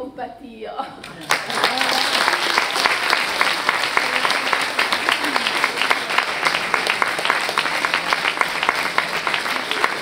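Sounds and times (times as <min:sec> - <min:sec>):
audience applauding: 0:01.0 - 0:10.0.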